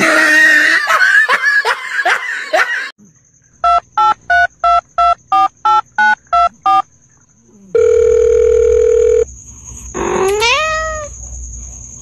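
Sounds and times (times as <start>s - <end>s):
keypad dialing beep: 3.6s - 6.8s
steady telephone tone: 7.8s - 9.3s
cat meowing: 10.0s - 11.1s.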